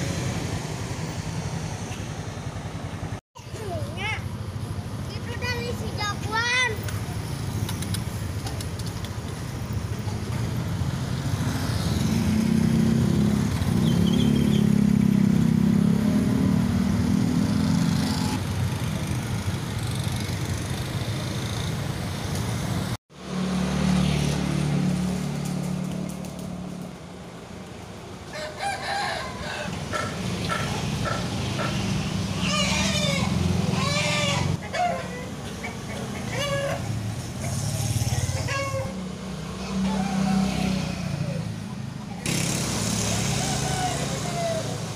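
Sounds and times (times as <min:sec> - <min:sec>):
motorcycle and car traffic passing: 0:00.0 - 0:44.9
vehicle engine close by: 0:07.0 - 0:28.0, 0:29.1 - 0:44.9
chickens calling: 0:28.3 - 0:39.0.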